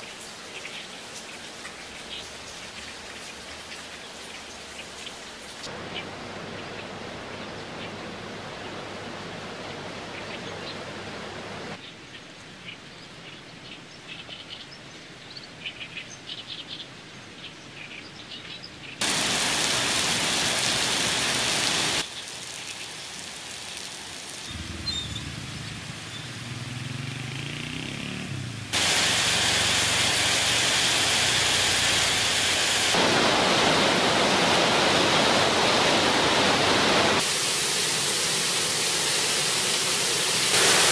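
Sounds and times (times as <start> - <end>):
steady rain hiss: 0.0 - 11.8, 19.0 - 40.9
water running off: 19.0 - 27.0, 28.7 - 40.9
heavy rain: 19.0 - 40.9
faint chirps: 24.5 - 26.4.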